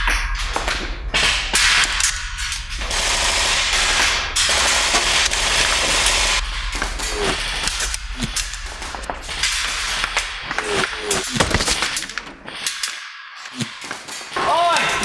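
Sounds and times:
automatic gunfire bursts: 2.8s - 6.4s.

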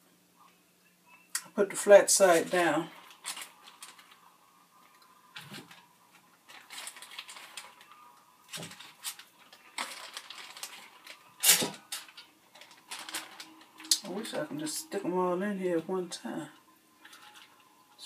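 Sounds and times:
plastic bag crinkling: 1.8s - 14.9s, 17.0s - 18.0s.

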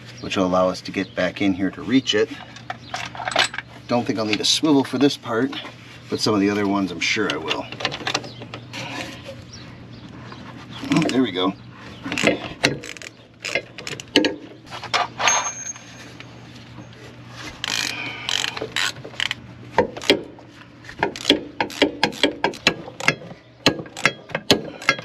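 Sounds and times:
hand ratchet clicking: 17.6s - 19.4s, 21.1s - 23.2s.

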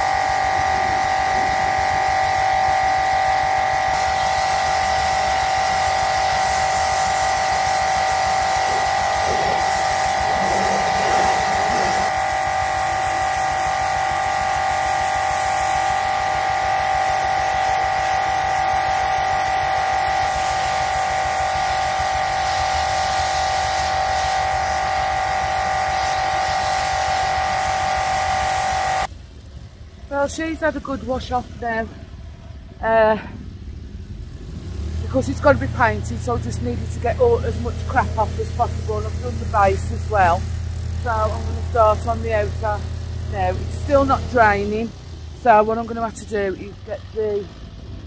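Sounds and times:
water jet hissing: 0.0s - 29.1s
pressure washer whine: 0.0s - 48.0s.

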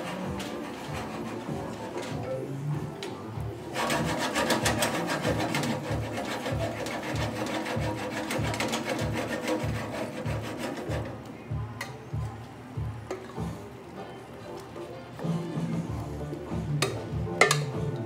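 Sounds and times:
wooden spoon scraping a pan: 0.0s - 2.3s, 3.7s - 11.2s
background music beat: 0.0s - 18.0s.

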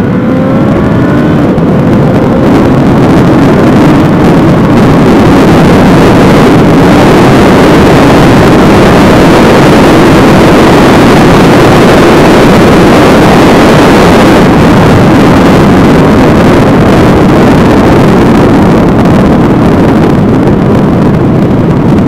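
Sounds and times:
motorcycle engine roaring: 0.0s - 22.0s
wind rush on microphone: 0.0s - 22.0s.

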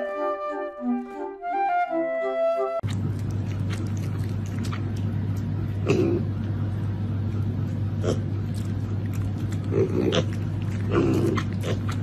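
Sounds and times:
steady low hum: 2.8s - 12.0s.

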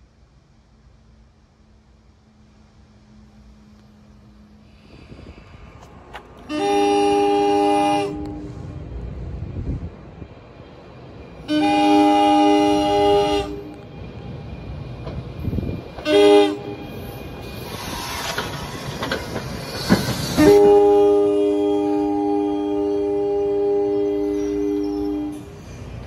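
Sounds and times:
train air horn: 6.4s - 8.7s, 11.4s - 13.8s, 16.0s - 17.2s, 20.2s - 25.8s
train wheels clacking on rails: 12.6s - 21.6s.

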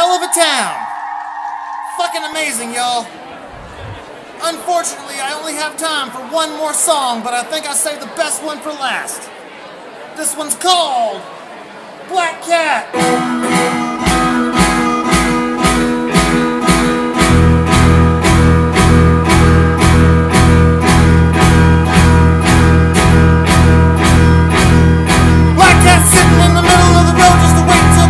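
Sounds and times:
wavering lead guitar line: 12.9s - 28.0s
drum beat: 13.0s - 28.0s
electric guitar chords: 13.0s - 28.0s
heavy bass: 13.0s - 28.0s.

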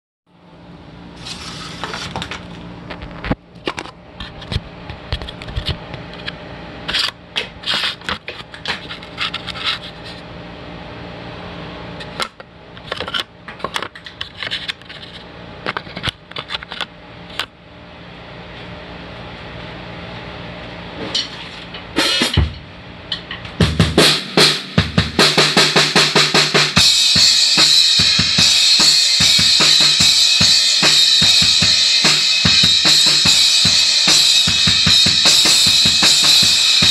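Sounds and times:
drum kit rock beat: 21.9s - 36.9s
cymbal wash: 24.0s - 36.9s.

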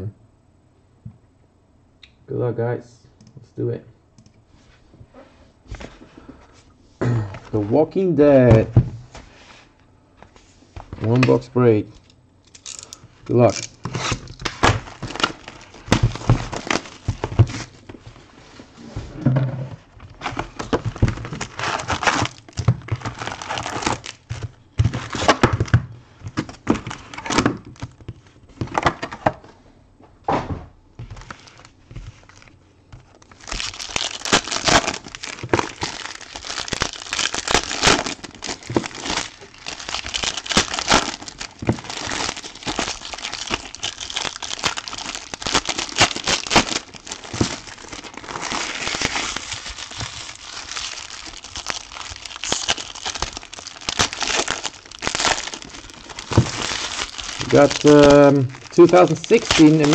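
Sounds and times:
foil card packs crinkling and tearing: 12.5s - 18.2s, 20.0s - 29.1s, 31.0s - 59.9s.

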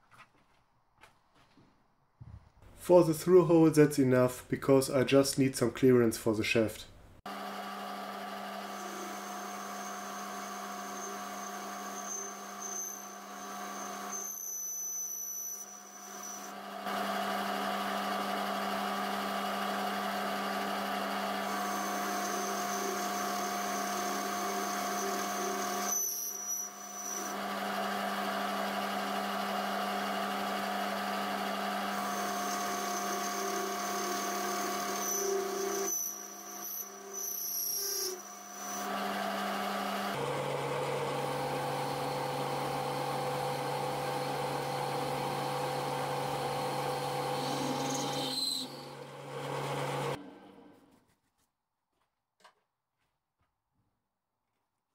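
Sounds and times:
lathe machine hum: 7.3s - 14.2s, 15.6s - 50.5s
lathe cutting metal: 7.3s - 50.2s.

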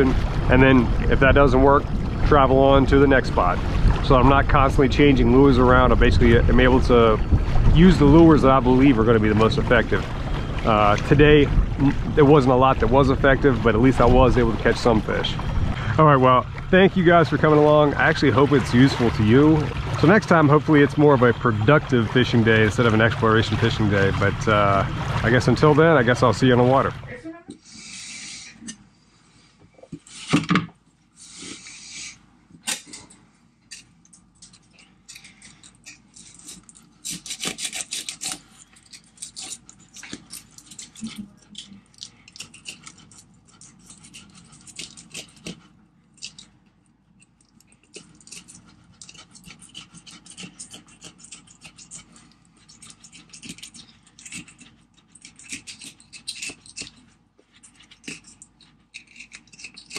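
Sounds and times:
knife scraping fish skin: 33.7s - 46.5s, 47.2s - 59.9s.

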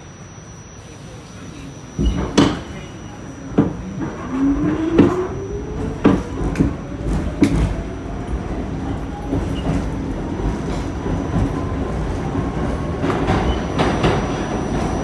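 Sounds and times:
subway traction motors whining: 0.0s - 15.0s
sharp clunks from train wheels: 2.0s - 2.8s, 3.5s - 4.2s, 5.9s - 7.8s.

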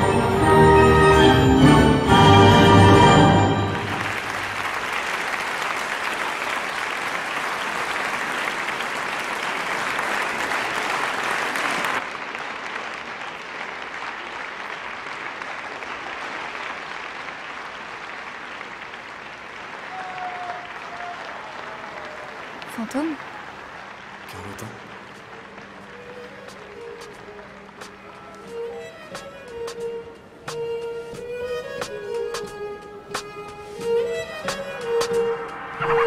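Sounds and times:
orchestral music: 0.0s - 4.7s, 24.2s - 36.0s
audience applauding: 2.7s - 29.8s.

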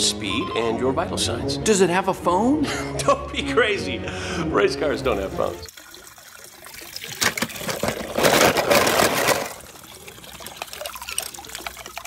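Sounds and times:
water splashing and sloshing: 5.1s - 12.0s.

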